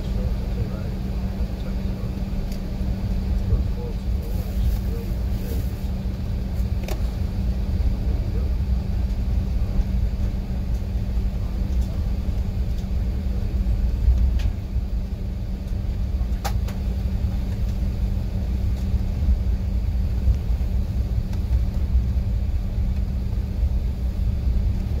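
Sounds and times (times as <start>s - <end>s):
aircraft cabin rumble: 0.0s - 25.0s
constant low hum: 0.0s - 25.0s.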